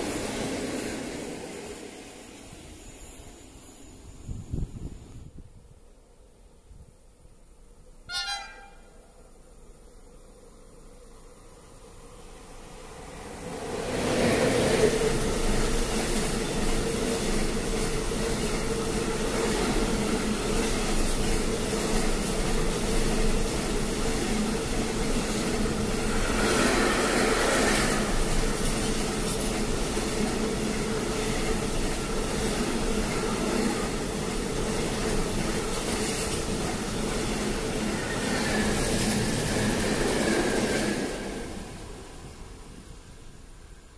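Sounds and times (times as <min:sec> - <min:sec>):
train wheels rumbling on rail: 0:00.0 - 0:05.8, 0:10.4 - 0:43.9
electric locomotive passing: 0:00.0 - 0:43.9.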